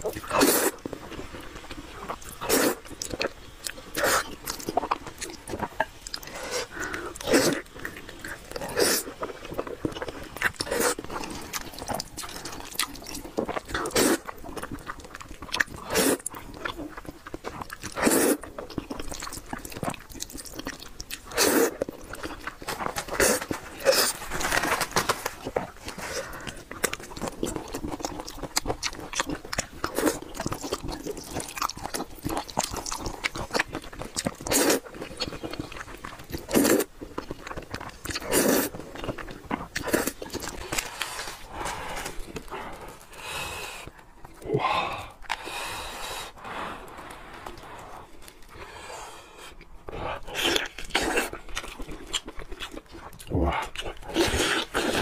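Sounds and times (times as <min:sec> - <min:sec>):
wet chewing: 0:00.0 - 0:48.7, 0:49.4 - 0:55.0
noodle slurping: 0:08.3 - 0:09.2, 0:13.6 - 0:14.4, 0:15.8 - 0:16.3, 0:21.2 - 0:22.2, 0:38.2 - 0:38.9, 0:53.6 - 0:55.0.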